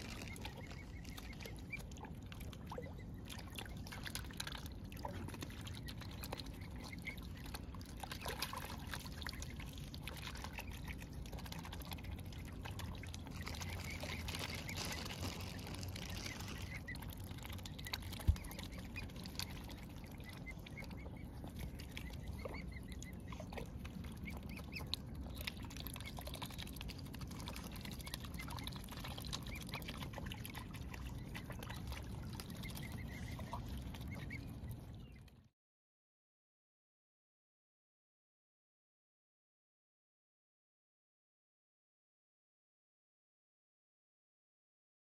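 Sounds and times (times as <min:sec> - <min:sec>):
swans and geese calling: 0:00.0 - 0:03.4, 0:12.9 - 0:25.0, 0:27.8 - 0:34.9
steady low rumble: 0:00.0 - 0:35.3.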